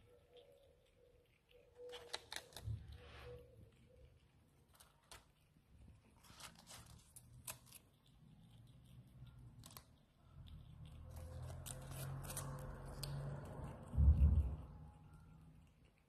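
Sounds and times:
squirrel chewing greens: 0:00.0 - 0:16.0
low rumble: 0:12.4 - 0:15.1.

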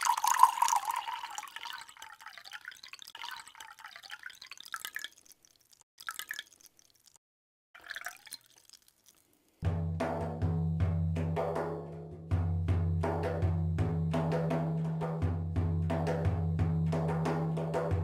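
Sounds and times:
milk pouring and splashing: 0:00.0 - 0:07.2, 0:07.8 - 0:09.6
trickles and drips: 0:00.0 - 0:07.2, 0:07.8 - 0:09.6.

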